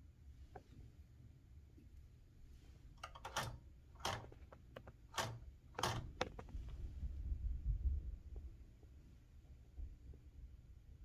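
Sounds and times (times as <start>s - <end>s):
typewriter clacks: 3.0s - 6.5s.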